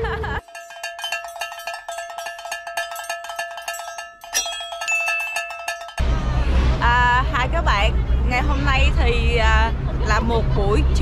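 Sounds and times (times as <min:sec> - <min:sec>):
bells shaken rapidly: 0:00.4 - 0:06.2.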